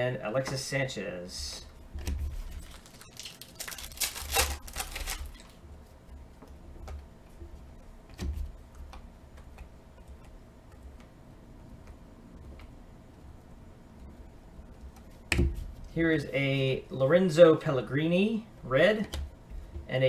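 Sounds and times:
trading cards rustling: 2.2 - 5.6.

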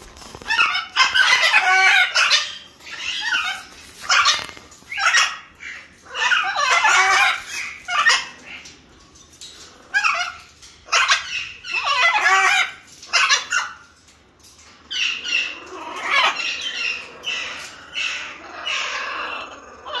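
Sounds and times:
macaws squawking: 0.3 - 8.6, 14.9 - 20.0.

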